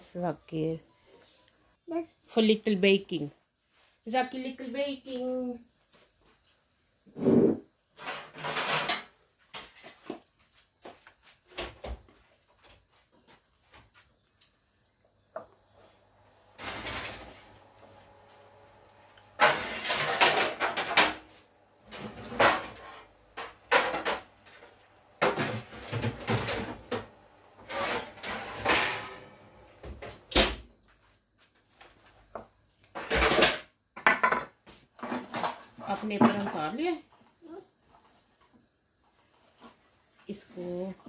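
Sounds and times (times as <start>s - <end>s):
ceramic bowl scraping on worktop: 7.1s - 9.0s, 27.6s - 29.2s.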